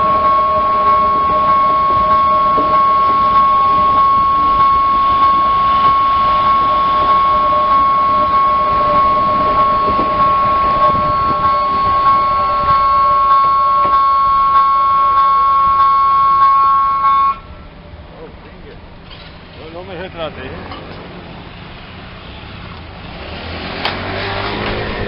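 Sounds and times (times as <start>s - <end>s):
level crossing warning bell: 0.0s - 17.6s
faint passing electric train: 0.0s - 25.0s.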